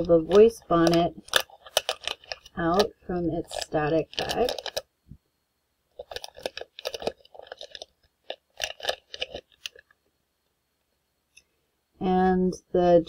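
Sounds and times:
plastic bag crinkling: 0.0s - 4.9s, 5.9s - 10.0s.

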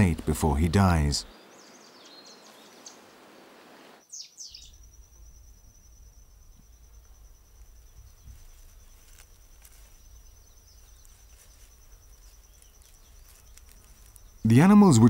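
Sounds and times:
insect high-pitched trill: 4.0s - 15.0s
faint rustling clicks: 7.0s - 10.2s, 10.8s - 14.4s.

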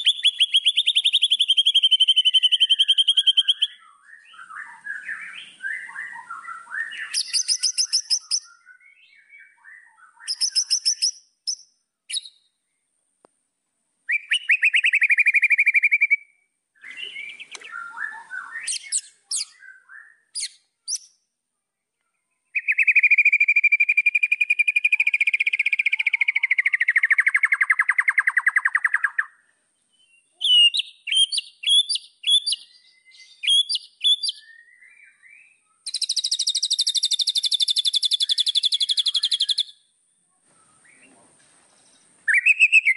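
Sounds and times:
bird singing buzzy trills: 0.0s - 12.9s, 22.4s - 39.9s.

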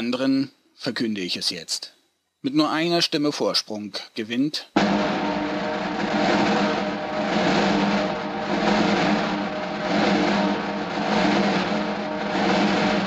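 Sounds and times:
snare drum roll: 4.8s - 13.0s.

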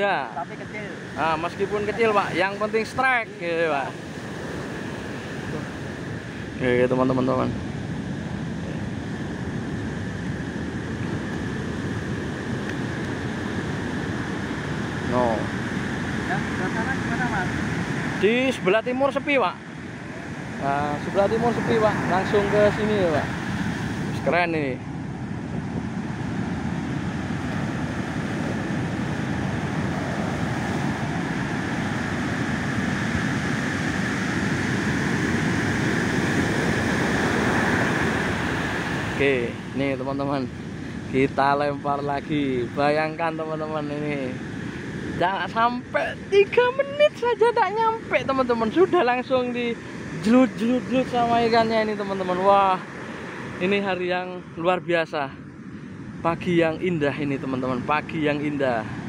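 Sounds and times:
ocean surf on a beach: 0.0s - 59.0s
wind on microphone: 19.7s - 52.4s.

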